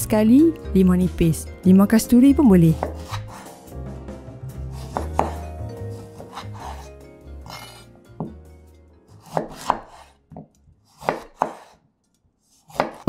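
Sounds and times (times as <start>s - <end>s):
knife chopping on wooden board: 2.7s - 3.7s, 4.7s - 8.4s, 9.2s - 11.8s, 12.5s - 13.0s.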